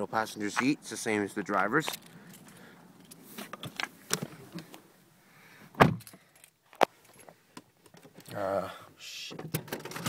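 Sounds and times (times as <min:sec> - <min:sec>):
handling clicks and rustles: 0:00.2 - 0:04.9, 0:05.8 - 0:08.4, 0:09.4 - 0:10.0.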